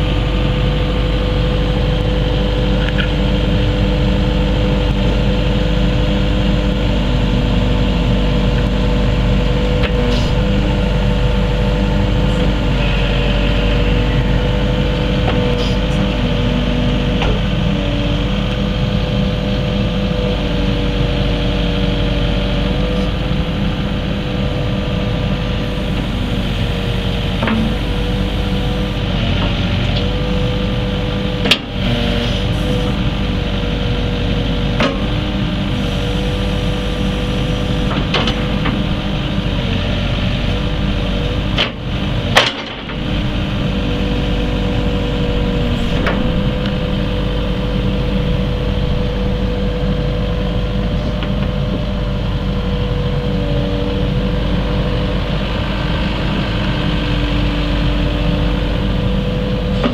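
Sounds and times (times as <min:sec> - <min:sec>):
diesel engine running: 0:00.0 - 0:59.9
hydraulic whine: 0:00.0 - 0:59.9.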